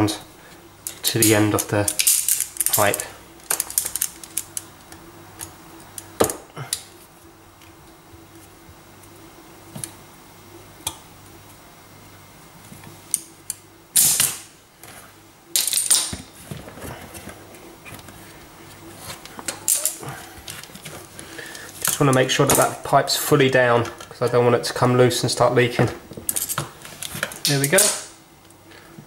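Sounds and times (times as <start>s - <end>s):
handling noise: 25.7s - 28.0s.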